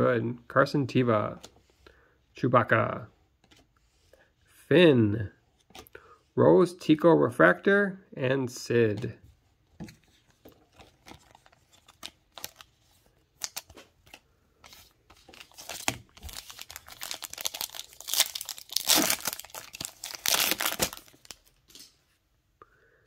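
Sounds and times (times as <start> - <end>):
foil wrapper tearing and crinkling: 15.4 - 21.6.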